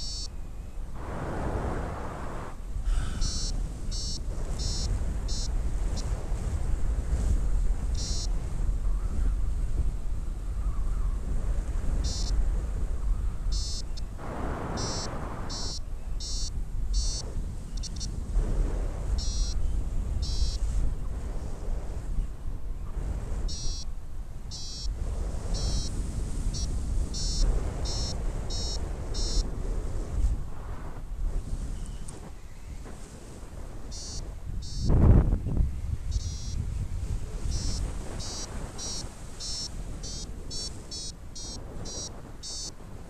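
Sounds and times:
variometer short high beeps: 0.0s - 0.3s, 3.2s - 6.1s, 8.0s - 8.3s, 12.0s - 12.4s, 13.5s - 14.1s, 14.8s - 17.2s, 17.8s - 18.1s, 19.2s - 19.6s, 20.2s - 20.6s, 23.5s - 23.9s, 24.5s - 24.9s, 25.6s - 25.9s, 26.6s - 29.5s, 33.9s - 34.9s, 36.1s - 36.6s, 37.5s - 42.8s
wind on microphone: 0.0s - 43.0s.

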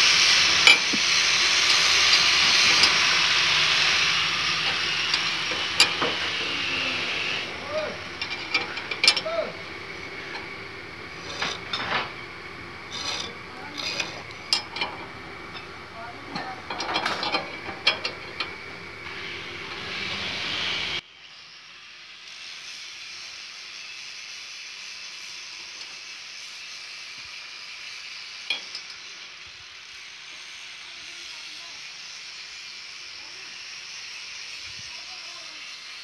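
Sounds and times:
spanner clinking and scraping metal: 0.0s - 21.0s, 28.5s - 29.2s
steady hiss: 0.0s - 36.0s.

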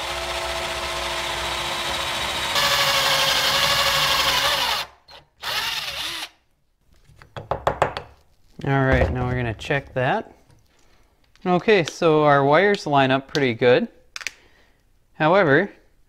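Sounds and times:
cordless drill cutting steel: 0.0s - 6.4s.

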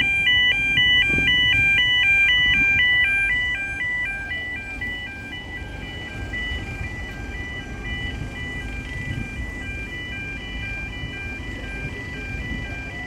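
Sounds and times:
two-tone level crossing alarm: 0.0s - 13.0s.

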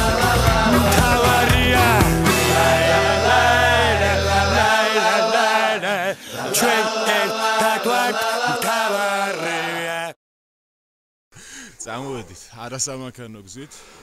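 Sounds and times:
deep bass: 0.0s - 4.7s
person singing over a band: 0.0s - 5.6s.

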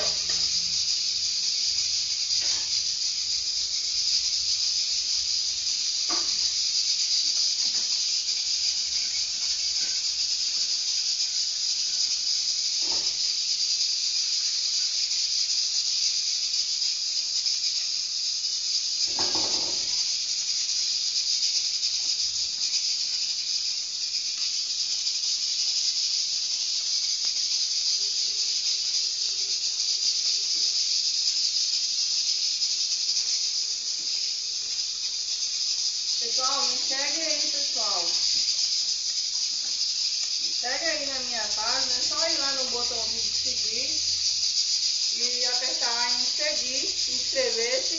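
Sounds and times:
pork frying in oil: 0.0s - 42.2s.

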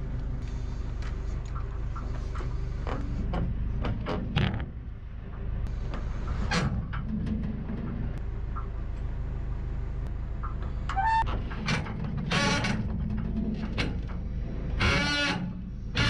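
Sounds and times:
diesel engine running: 0.0s - 16.0s
metallic squeals and screeches: 10.9s - 12.9s, 14.7s - 16.0s.

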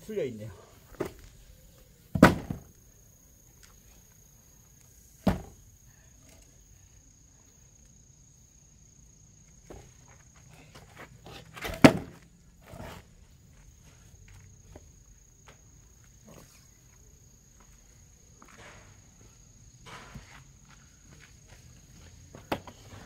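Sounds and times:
heavy logs thudding: 2.1s - 2.8s, 5.2s - 5.6s, 10.7s - 13.0s.

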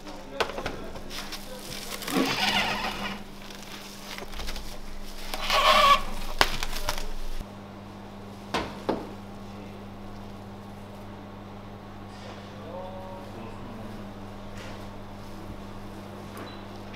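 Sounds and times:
cling film crinkling: 0.8s - 7.4s
squeaky film stretch: 1.4s - 7.4s.

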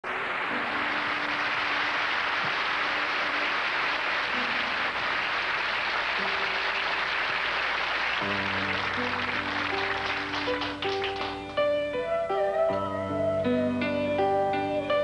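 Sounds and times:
audience applauding: 0.0s - 11.6s
faint held orchestral notes: 8.2s - 15.0s.

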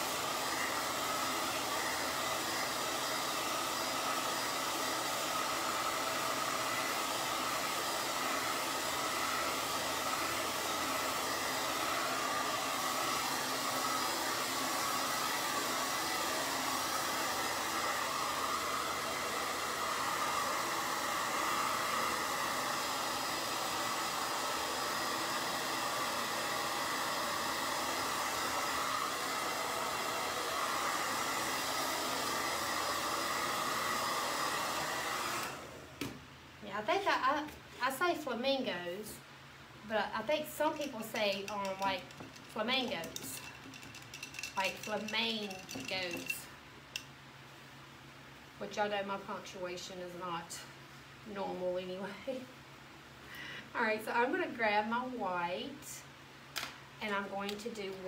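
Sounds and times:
hot-air dryer whirring: 0.0s - 36.2s, 40.3s - 46.4s.

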